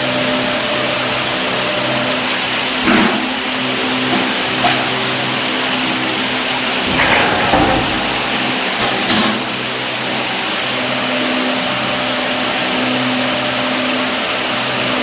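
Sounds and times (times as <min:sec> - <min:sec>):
machine hum and whir: 0:06.8 - 0:09.7.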